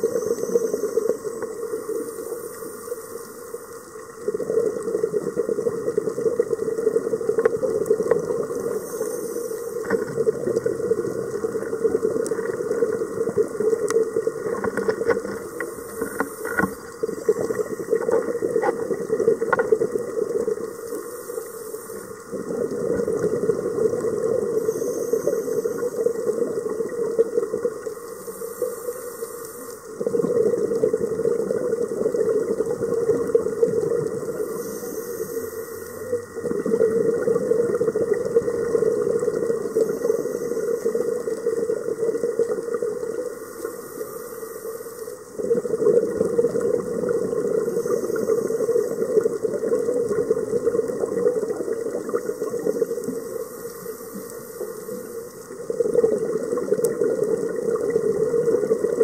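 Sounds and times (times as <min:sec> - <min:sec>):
underwater exhaled bubbles: 0:00.0 - 0:59.0
regulator inhalation hiss: 0:20.7 - 0:22.4, 0:24.4 - 0:26.3, 0:28.0 - 0:30.0, 0:34.2 - 0:36.5, 0:43.3 - 0:45.4.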